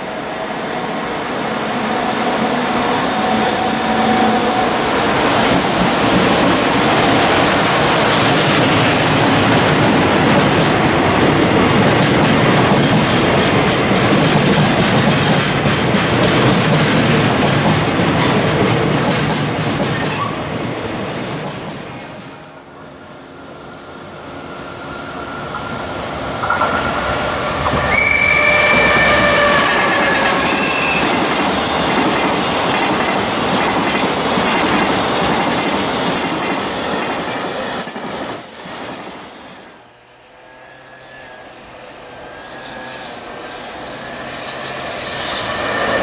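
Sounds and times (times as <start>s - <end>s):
freight train rumbling past: 0.0s - 46.0s
electric locomotive motor tone: 23.0s - 31.3s, 39.8s - 46.0s
wheels clattering over rail joints: 25.5s - 28.0s.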